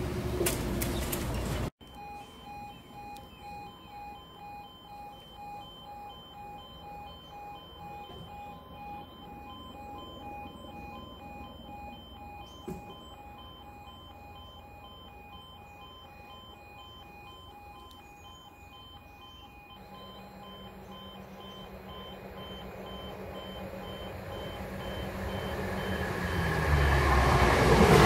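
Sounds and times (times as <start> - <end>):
pulsing electronic warning tone: 1.8 - 28.0.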